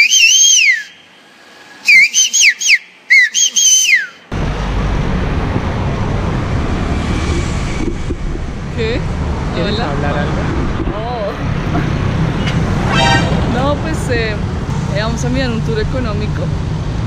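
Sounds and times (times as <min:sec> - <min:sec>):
man whistling through fingers: 0:00.0 - 0:01.0, 0:01.8 - 0:04.2
street traffic: 0:00.0 - 0:17.0
wind: 0:00.0 - 0:17.0.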